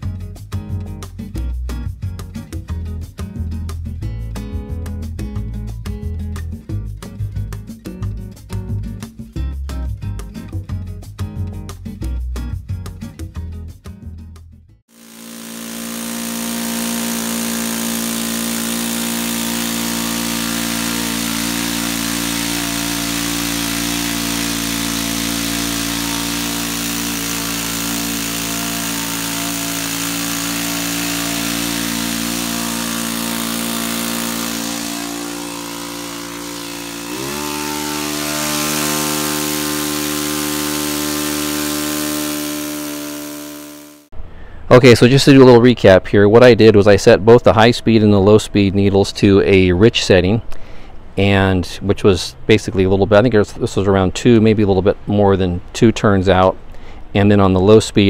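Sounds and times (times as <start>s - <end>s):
model glow engine running: 14.9s - 44.1s.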